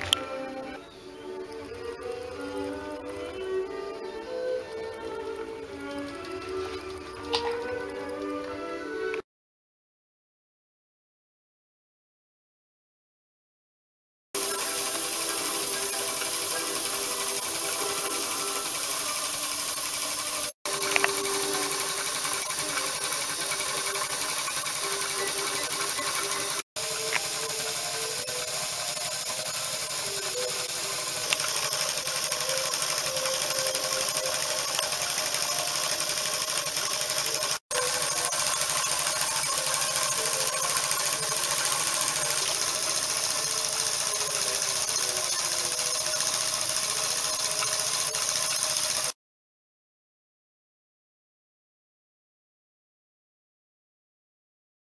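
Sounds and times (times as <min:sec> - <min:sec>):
model engine clattering: 0:05.2 - 0:08.6, 0:14.4 - 0:49.2
air hiss: 0:14.4 - 0:36.2.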